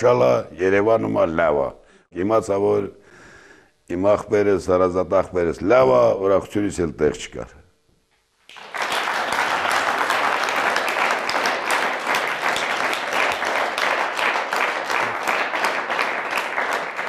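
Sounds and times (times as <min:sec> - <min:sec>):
audience applauding: 0:08.5 - 0:17.0.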